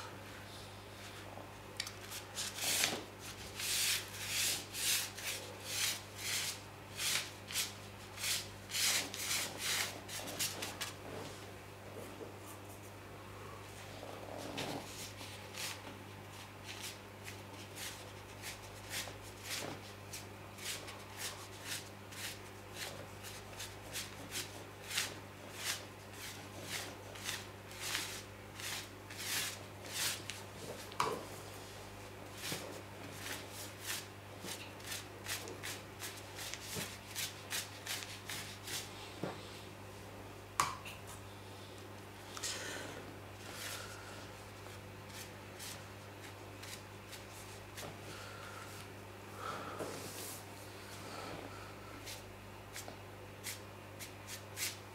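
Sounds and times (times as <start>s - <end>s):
brush sweeping across paper: 2.1s - 11.0s, 14.7s - 30.9s, 32.4s - 38.9s, 45.1s - 47.9s, 52.0s - 54.8s.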